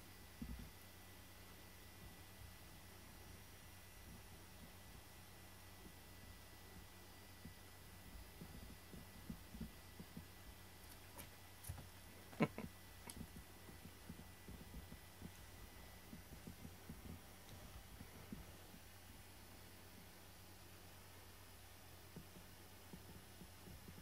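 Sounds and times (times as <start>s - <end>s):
cats play-fighting thumps and scuffs: 7.4s - 10.3s, 10.9s - 12.0s.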